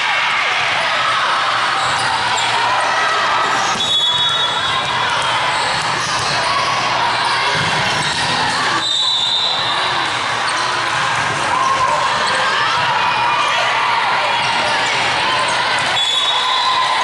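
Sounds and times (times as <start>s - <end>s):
people talking: 0.0s - 17.0s
sneakers squeaking on floor: 1.7s - 2.7s, 3.6s - 12.8s.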